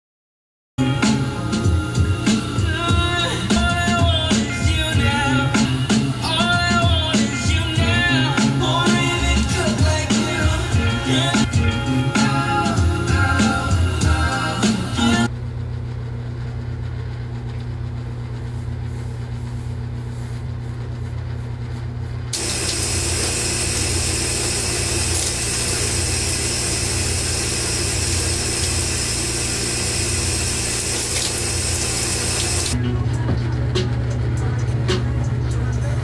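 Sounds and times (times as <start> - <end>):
small electric motor humming: 22.4 - 32.8.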